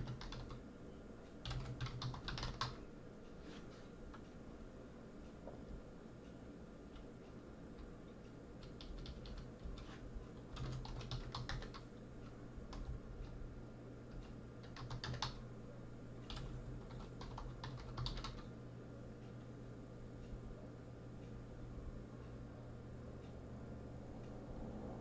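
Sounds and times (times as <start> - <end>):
computer keyboard typing: 0.0 - 0.6, 1.4 - 2.8, 8.6 - 11.9, 12.7 - 13.4, 14.1 - 15.5, 16.2 - 18.6.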